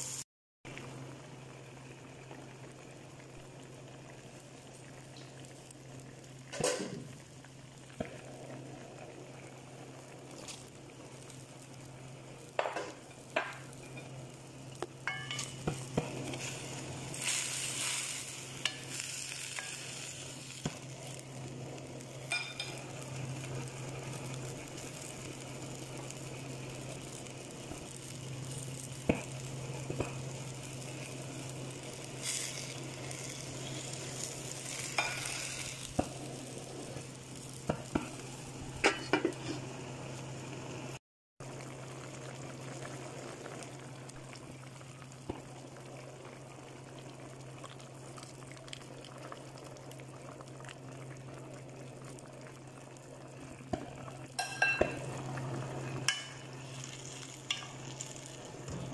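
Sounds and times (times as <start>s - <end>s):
food sizzling and bubbling in a pot: 0.0s - 58.9s.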